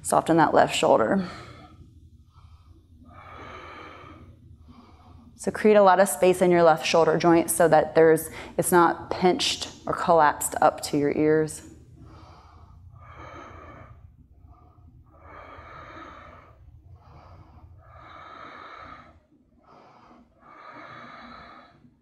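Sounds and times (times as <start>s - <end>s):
woman breathing: 0.5s - 7.4s, 8.2s - 8.6s, 11.6s - 22.0s.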